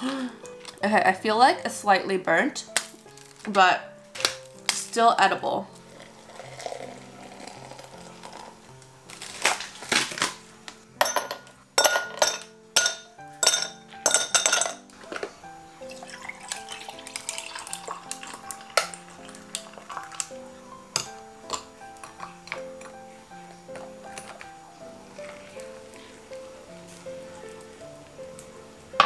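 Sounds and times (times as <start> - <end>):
background music: 0.0 - 29.0
milk pouring: 5.8 - 8.8, 15.8 - 20.5, 25.1 - 27.6.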